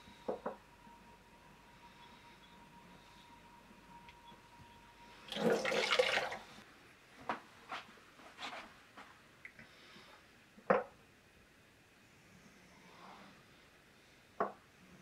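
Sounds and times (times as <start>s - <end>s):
water splashing and trickling: 5.3s - 6.5s.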